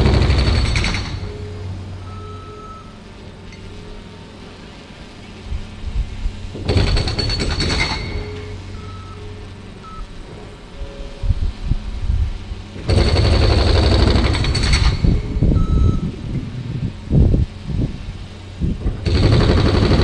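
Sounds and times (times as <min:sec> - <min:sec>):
demolition machinery rattling: 0:00.0 - 0:10.8, 0:12.6 - 0:20.0
short beeps: 0:01.2 - 0:03.0, 0:08.1 - 0:10.2, 0:10.8 - 0:11.2, 0:15.5 - 0:16.1.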